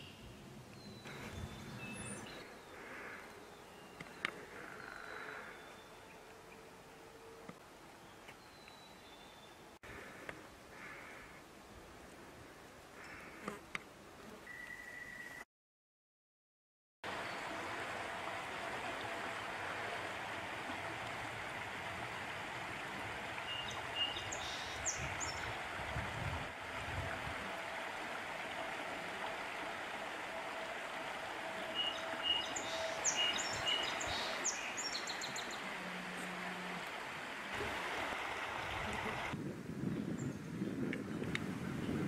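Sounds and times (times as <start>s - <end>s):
stream rippling over rocks: 17.1s - 39.4s.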